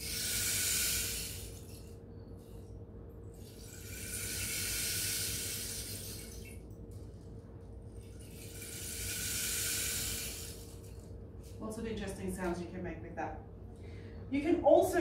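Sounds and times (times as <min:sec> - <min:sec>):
rain stick trickling hiss: 0:03.5 - 0:06.2, 0:08.3 - 0:10.9.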